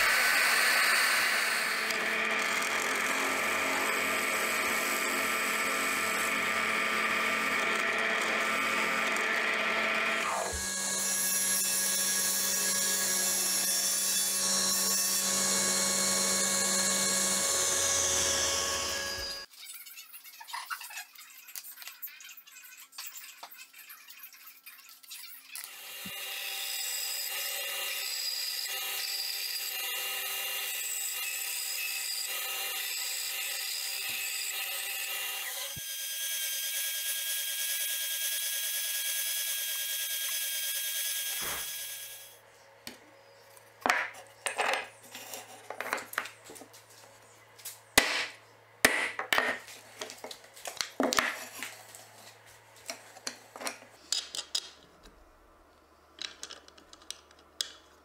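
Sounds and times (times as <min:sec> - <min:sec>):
saw sawing through wood: 0:08.0 - 0:19.5
wooden parts and hardware clicking: 0:56.1 - 0:57.9.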